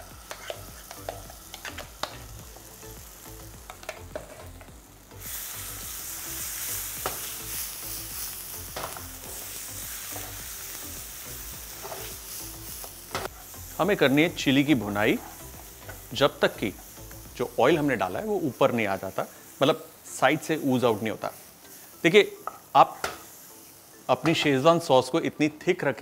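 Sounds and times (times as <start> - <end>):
paste sizzling in hot oil: 0.0 - 25.4.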